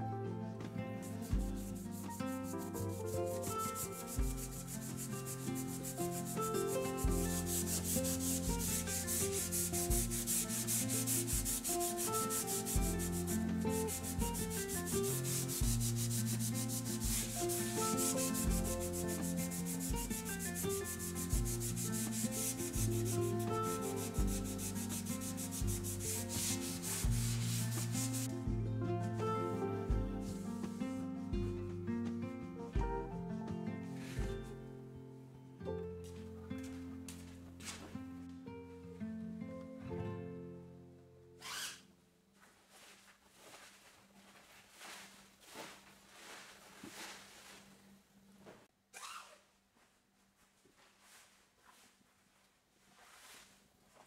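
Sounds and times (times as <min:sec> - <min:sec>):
soft background music: 0:00.0 - 0:41.5
cloth rubbing on a wall: 0:01.0 - 0:28.3, 0:41.4 - 0:41.8, 0:42.4 - 0:47.8, 0:48.4 - 0:54.0.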